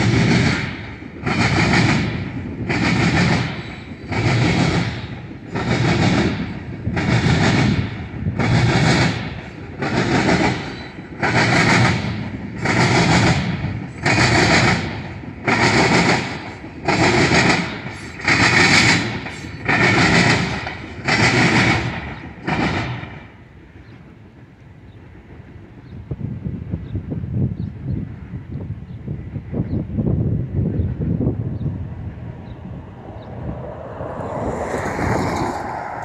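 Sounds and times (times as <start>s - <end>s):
train wheels clattering on tracks: 0.0s - 36.0s
loud bang of wheels crossing: 31.2s - 36.0s.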